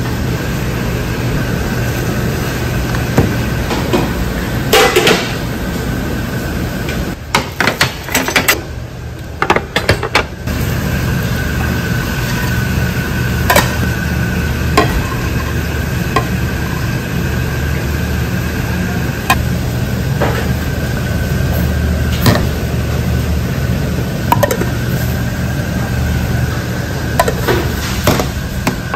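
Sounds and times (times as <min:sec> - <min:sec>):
kitchen machinery humming: 0:00.0 - 0:28.9
thin steady whine: 0:10.4 - 0:28.9.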